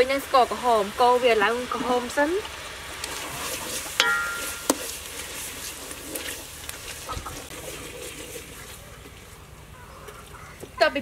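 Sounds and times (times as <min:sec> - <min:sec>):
stirring paste in pot: 0:03.0 - 0:09.2
utensil knocking on metal pot: 0:04.0 - 0:04.8.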